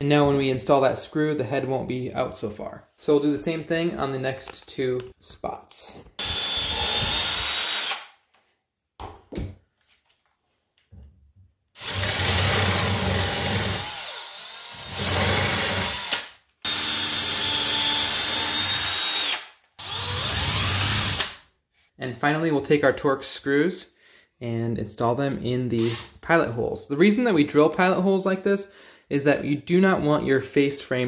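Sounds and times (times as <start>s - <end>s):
cordless drill whining: 6.2s - 8.1s, 11.8s - 21.3s.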